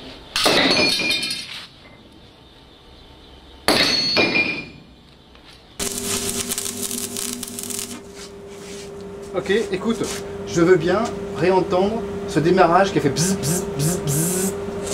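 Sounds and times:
arc welder crackling and humming: 5.8 - 12.4, 13.0 - 14.9.

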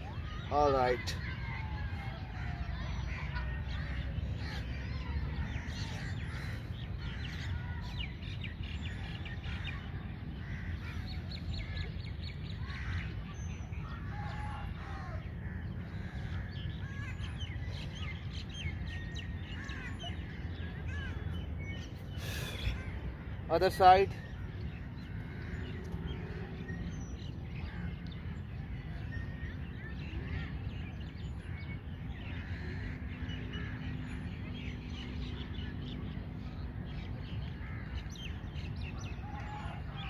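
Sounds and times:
birds chirping and calling: 0.0 - 40.0.

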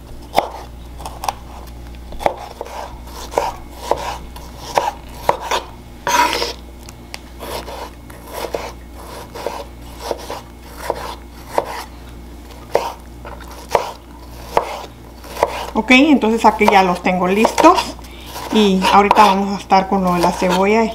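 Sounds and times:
knife chopping on wooden board: 0.3 - 1.5, 2.2 - 6.6, 7.4 - 11.9, 12.6 - 15.8, 16.5 - 19.4
knife scrape: 0.4 - 6.6, 7.4 - 15.8, 17.5 - 19.3, 20.0 - 20.7.

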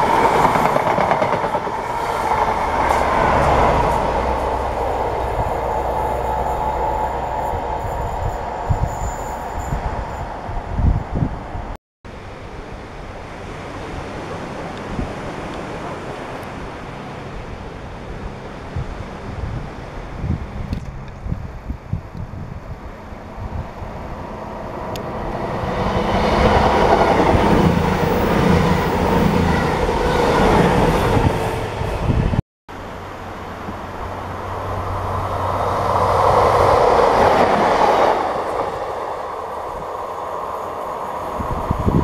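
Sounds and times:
diesel train passing: 0.0 - 12.3, 22.4 - 42.0.

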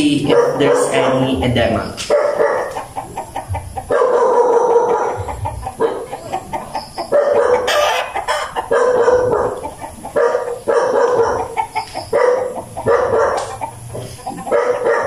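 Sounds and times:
rooster crowing: 6.8 - 9.6.

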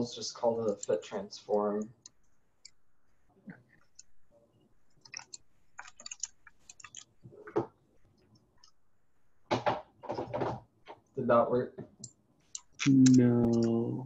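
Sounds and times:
keyboard typing: 0.6 - 4.2, 4.8 - 7.2, 12.0 - 13.8.

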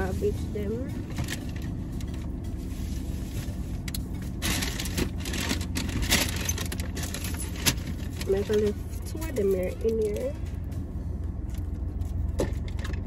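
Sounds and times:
low cabin hum: 0.0 - 13.0
rustling and scraping of items: 0.9 - 10.3.

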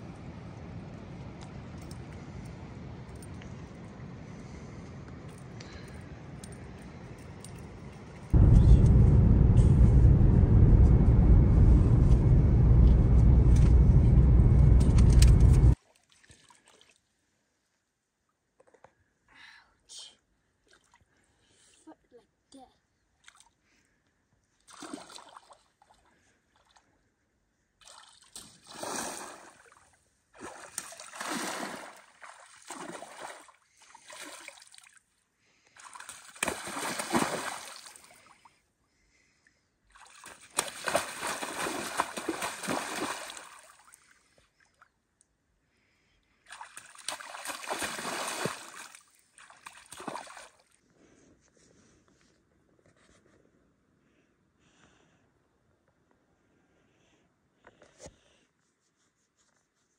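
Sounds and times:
water splashing around wading legs: 30.4 - 35.0, 35.8 - 38.3, 40.0 - 44.1, 46.5 - 50.8.

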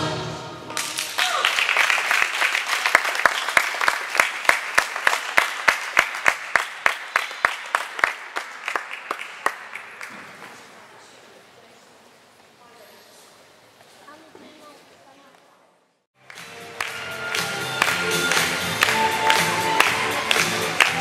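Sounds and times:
choral music: 0.0 - 0.9, 16.2 - 21.0
clapping in unison: 0.7 - 10.5, 16.2 - 21.0
audience applause: 0.7 - 10.8, 16.2 - 21.0.

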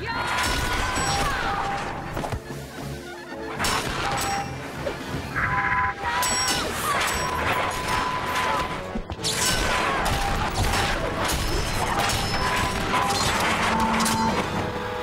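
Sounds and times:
metallic clangs and whacks: 3.6 - 4.5, 6.2 - 14.8.

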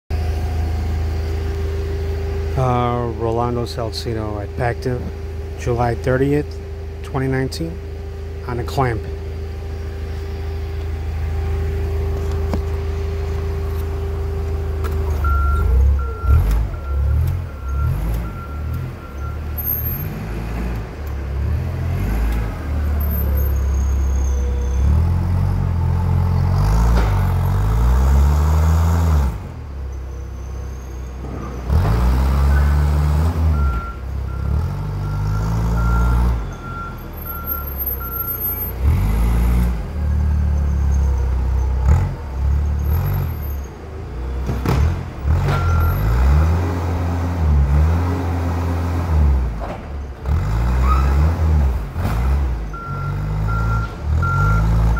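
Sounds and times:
forklift engine revving: 0.1 - 54.9
reversing beeper: 11.4 - 20.3, 22.8 - 26.0, 32.4 - 38.8, 45.5 - 46.1, 52.7 - 54.8.

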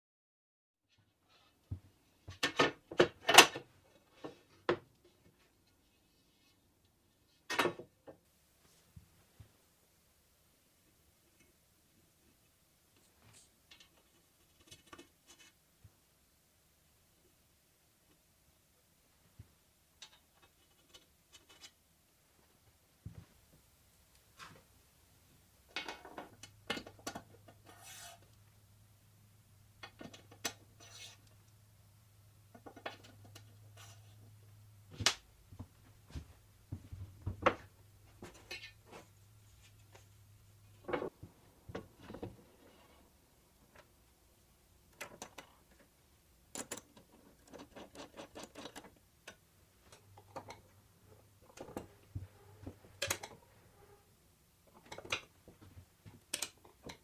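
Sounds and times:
wood and metal sliding on tabletop: 27.6 - 28.3, 30.8 - 31.2.

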